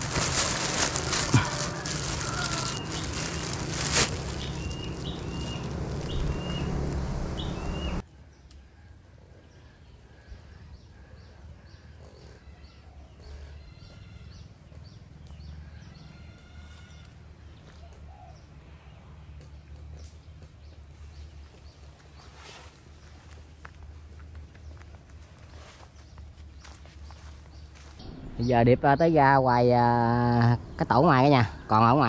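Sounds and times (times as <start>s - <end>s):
loud rustling and crackling: 0.0s - 8.0s
birds chirping: 0.3s - 8.5s, 16.8s - 32.0s.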